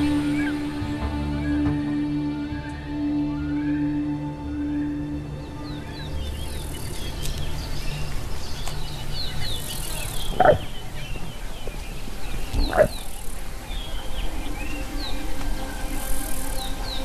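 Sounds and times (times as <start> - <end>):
small birds chirping: 0.0 - 1.8, 4.7 - 17.0
insects buzzing: 5.8 - 17.0
short animal calls: 10.3 - 10.7.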